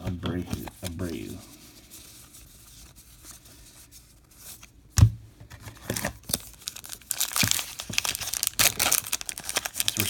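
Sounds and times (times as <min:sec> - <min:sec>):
wrapper crinkling and tearing: 0:05.9 - 0:10.0.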